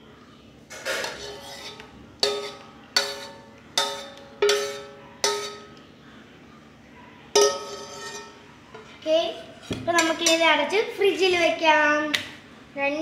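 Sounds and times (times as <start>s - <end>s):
metal pan knocked ringing: 7.4s - 8.2s.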